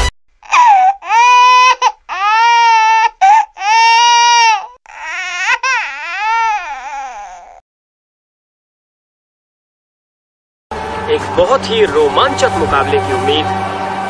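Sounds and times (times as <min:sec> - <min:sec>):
high-pitched crying wails: 0:00.4 - 0:07.6.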